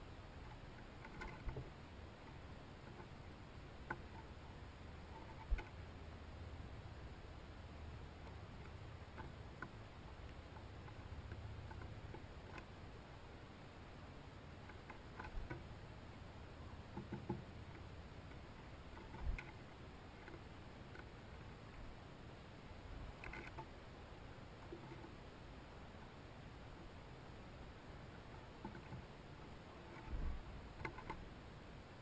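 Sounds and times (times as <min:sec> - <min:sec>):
low outdoor hiss: 0:00.0 - 0:32.0
bird pecking on wood: 0:00.4 - 0:03.2, 0:03.8 - 0:04.4, 0:08.2 - 0:12.8, 0:14.6 - 0:15.8, 0:16.8 - 0:21.9, 0:23.0 - 0:23.7, 0:28.1 - 0:31.2.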